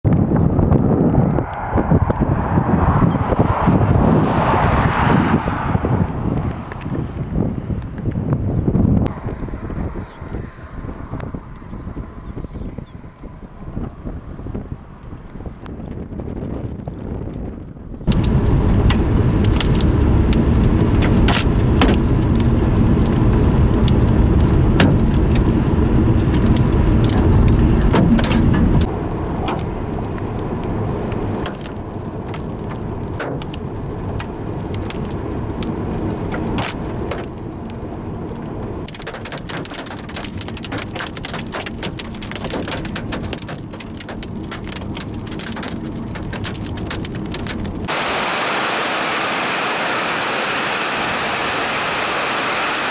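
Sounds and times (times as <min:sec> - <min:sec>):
vehicle driving rumble: 0:00.1 - 0:52.9
rain patter: 0:09.1 - 0:52.9
hailstones knocking on vehicle roof: 0:18.1 - 0:28.9, 0:38.8 - 0:48.6.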